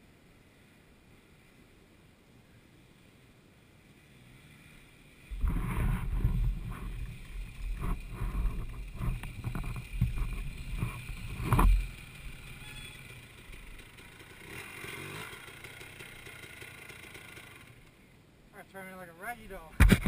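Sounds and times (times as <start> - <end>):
low rumbling and rubbing: 5.3 - 12.6
sharp knocks on camera: 19.8 - 20.0.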